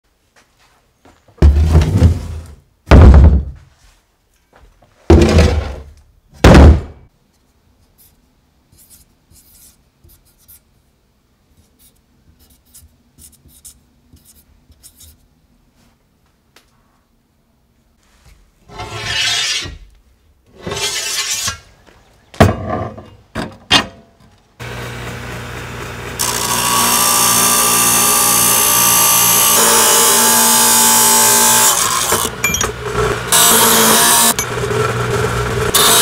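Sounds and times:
marker scratching on steel: 0:08.0 - 0:10.7, 0:11.5 - 0:15.3.

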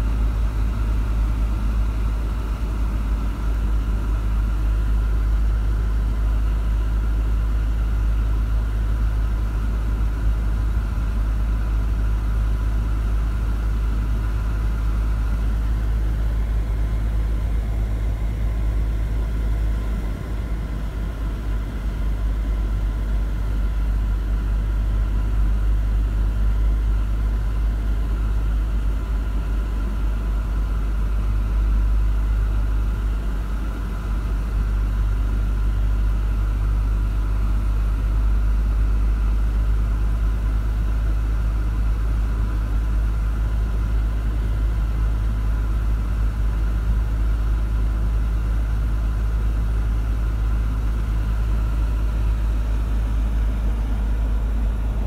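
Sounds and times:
car cabin road rumble: 0:08.4 - 0:40.8, 0:43.6 - 0:55.0.

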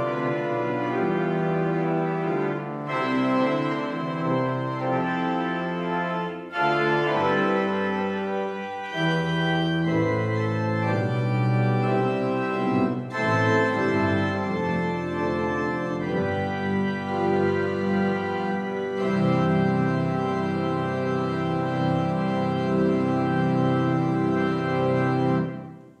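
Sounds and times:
pipe organ playing chords: 0:00.0 - 0:26.0.

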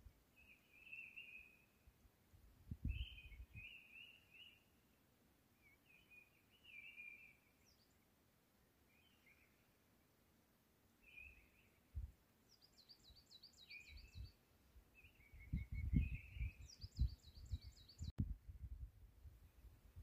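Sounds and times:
small songbirds singing: 0:00.3 - 0:01.8, 0:02.8 - 0:05.0, 0:05.6 - 0:09.8, 0:11.0 - 0:18.2.

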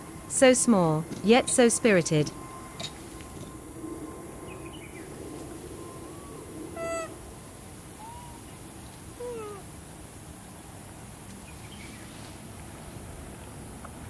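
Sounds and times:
outdoor background hiss: 0:00.0 - 0:14.0
macaques giving high coo calls: 0:05.8 - 0:07.3, 0:07.9 - 0:09.7.

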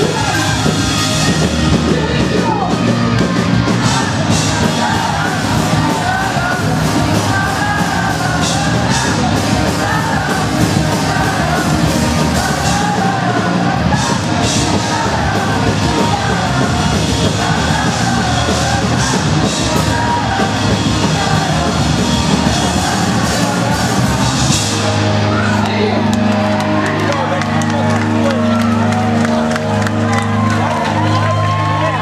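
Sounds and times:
drums with crashing cymbals: 0:00.0 - 0:25.0
distorted guitars: 0:00.0 - 0:32.0
shouted vocals: 0:00.0 - 0:32.0.

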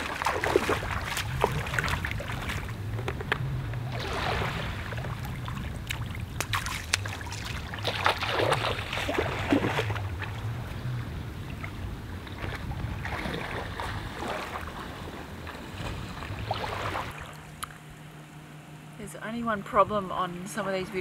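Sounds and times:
small waves lapping on shore: 0:00.0 - 0:17.9
low steady rumble: 0:00.0 - 0:21.0.

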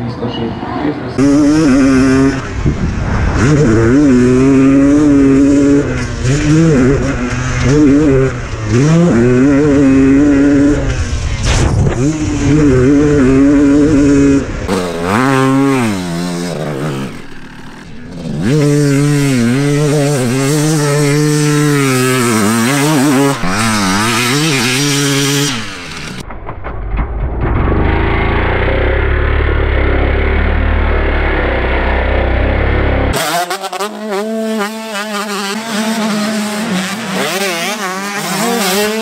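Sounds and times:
motocross bike engine revving: 0:01.2 - 0:26.3, 0:27.6 - 0:39.0.

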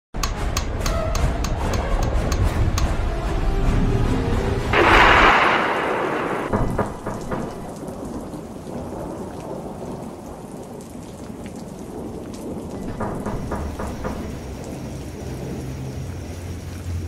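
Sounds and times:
steady rain falling: 0:00.3 - 0:17.0
thunderclap: 0:04.8 - 0:15.6.

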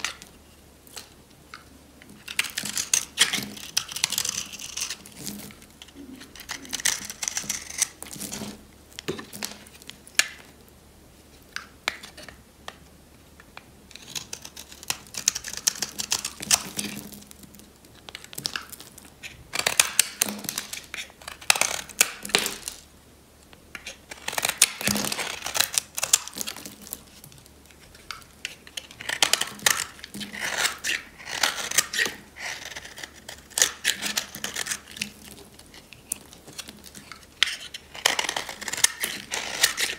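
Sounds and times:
knife cutting crunchy soap: 0:02.2 - 0:10.4, 0:13.9 - 0:17.2, 0:23.8 - 0:39.9.

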